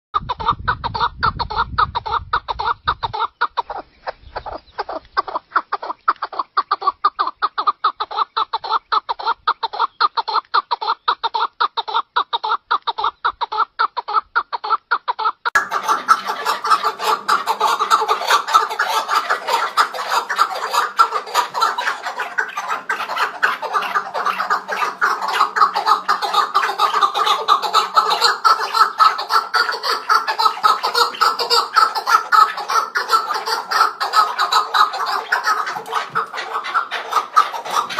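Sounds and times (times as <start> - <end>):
partridge clucking calls: 0.2 - 37.9.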